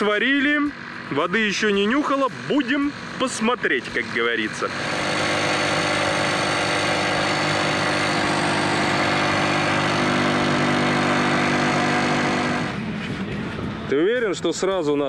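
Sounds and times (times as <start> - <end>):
electric air pump humming: 4.6 - 12.8.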